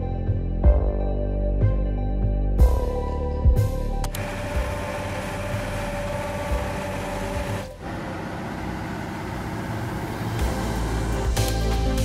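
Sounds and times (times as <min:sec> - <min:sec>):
construction machinery engine running: 0:04.0 - 0:12.0
heavier machine rumble: 0:04.1 - 0:12.0.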